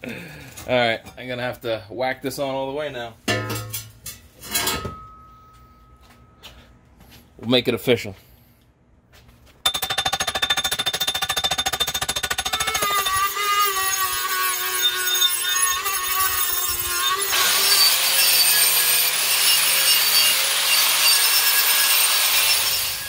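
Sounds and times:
angle grinder grinding: 0:12.0 - 0:23.0
rotary tool whining: 0:12.2 - 0:23.0.

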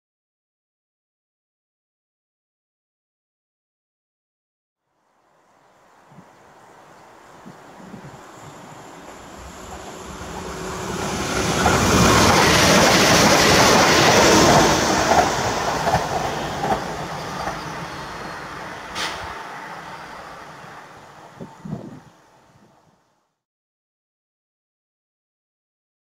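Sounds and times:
train wheels rumbling on rail: 0:07.3 - 0:22.1.

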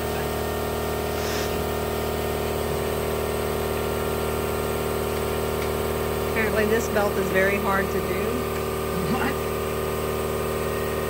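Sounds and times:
motor running steadily: 0:00.0 - 0:11.0.

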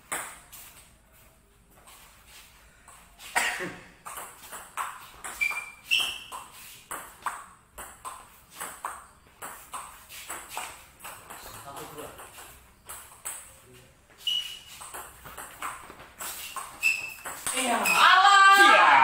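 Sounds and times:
short high squeaks: 0:05.2 - 0:06.8, 0:14.2 - 0:15.0, 0:16.2 - 0:18.2.

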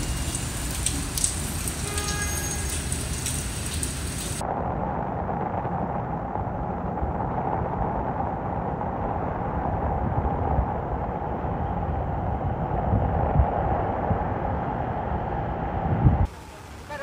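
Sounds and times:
heavy rain: 0:00.0 - 0:17.0
wind buffeting microphone: 0:03.1 - 0:16.3.

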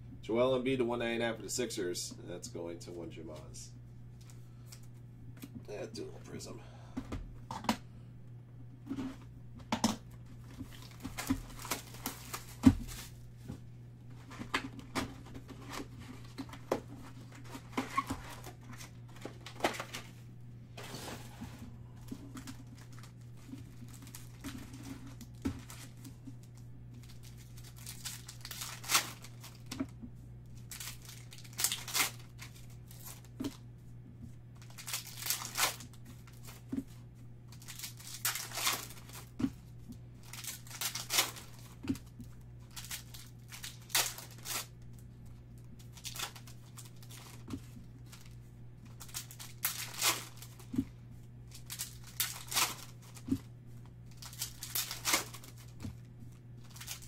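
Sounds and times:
faint low hum: 0:00.0 - 0:57.0
foil wrappers crinkling and tearing: 0:10.2 - 0:13.2, 0:22.0 - 0:29.9, 0:30.5 - 0:33.6, 0:34.6 - 0:36.8, 0:37.5 - 0:39.4, 0:40.2 - 0:50.9, 0:51.5 - 0:57.0.

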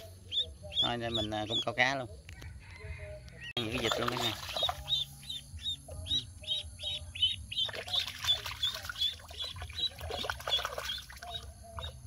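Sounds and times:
duck splashing in water: 0:03.6 - 0:05.1, 0:07.5 - 0:11.9.

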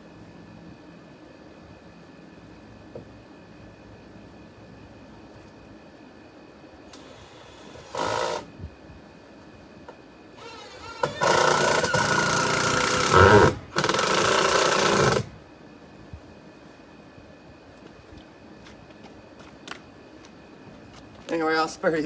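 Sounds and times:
power drill driving screws into wood: 0:07.0 - 0:08.5, 0:10.4 - 0:15.3.

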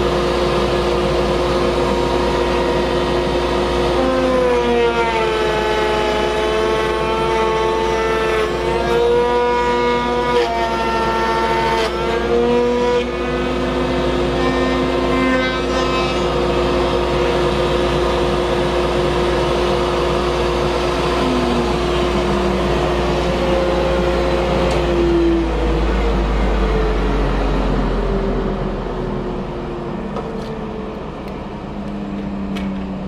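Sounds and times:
router whining while cutting wood: 0:00.0 - 0:33.0
steady low rumble: 0:18.5 - 0:33.0.

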